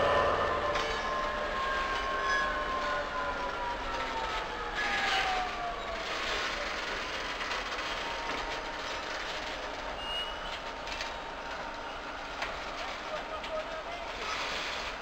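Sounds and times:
diesel locomotive engine running: 0.0 - 15.0
freight wagons rolling: 0.0 - 15.0
short high squeal: 10.0 - 10.6.

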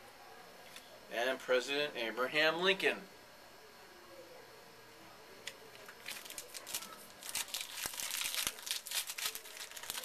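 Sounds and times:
card pack wrapper crinkling and tearing: 5.8 - 10.0.

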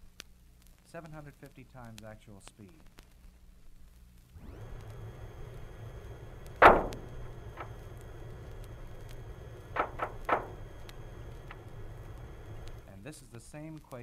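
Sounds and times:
steady hiss and rumble: 0.0 - 14.0
quick cracks: 4.0 - 12.9
sharp crack with rumble: 4.3 - 14.0
faint click: 4.4 - 12.9.

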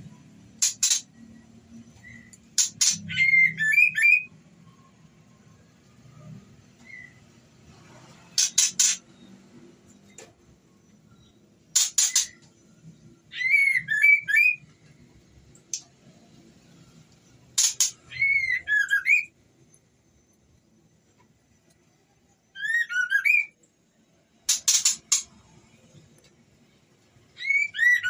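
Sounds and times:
bird harsh rasping calls: 0.6 - 1.1, 2.0 - 4.2, 8.3 - 9.0, 11.8 - 12.4, 17.6 - 19.2, 24.5 - 25.3
bird squeaky whistled notes: 27.4 - 28.0.

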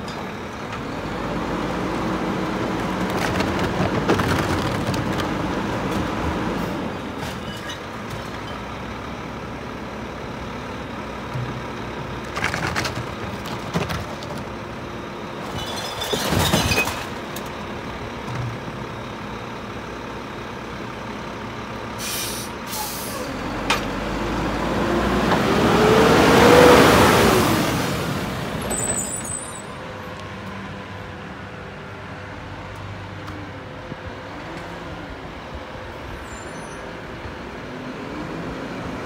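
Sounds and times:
truck pulling away: 0.2 - 7.2, 7.8 - 13.7, 16.9 - 31.8.

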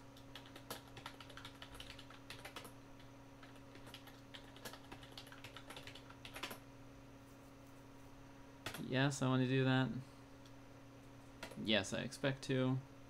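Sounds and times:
faint steady hum: 0.0 - 13.0
keyboard typing clicks: 0.2 - 2.7, 3.4 - 6.6, 8.6 - 8.9.

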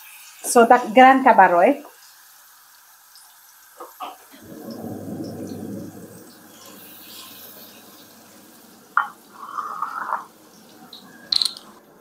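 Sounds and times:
garlic sizzling in hot oil: 0.0 - 4.7, 5.4 - 11.8
wooden spoon scraping a pan: 9.0 - 10.3.

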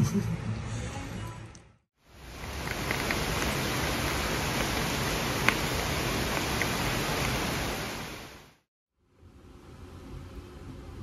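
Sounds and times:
heavy rain hissing: 2.0 - 8.7.

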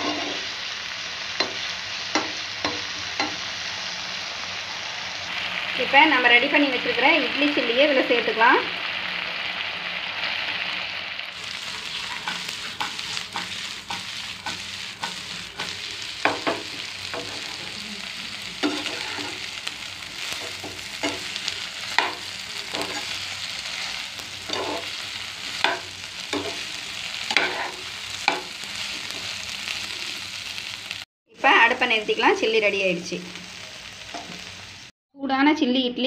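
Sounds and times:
spatula scraping and knocking pan: 0.0 - 0.4, 11.8 - 17.7, 18.6 - 19.5, 20.2 - 29.3
food sizzling in a frying pan: 0.0 - 35.0.

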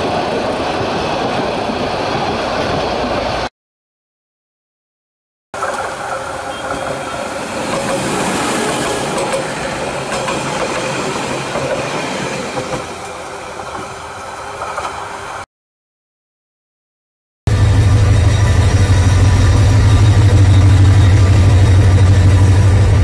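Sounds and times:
train rumbling past: 5.6 - 15.5, 17.5 - 23.0.

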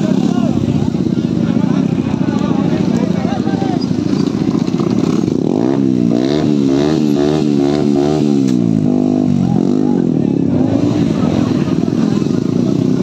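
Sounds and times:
motorcycle rough idle: 0.0 - 6.0, 8.4 - 13.0
motorcycle engine revving: 0.0 - 13.0.

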